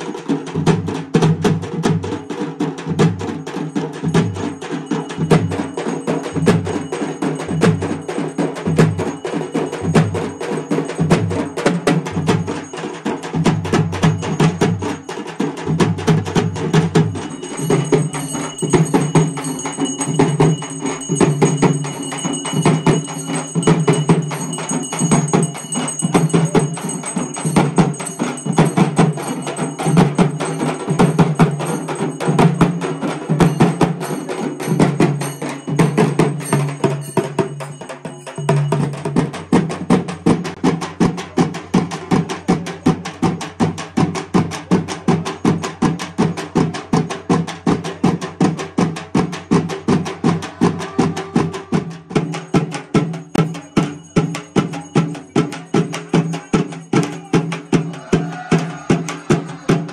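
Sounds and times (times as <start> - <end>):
frame drums beating: 0.0 - 59.9
metal percussion ringing: 0.0 - 59.9.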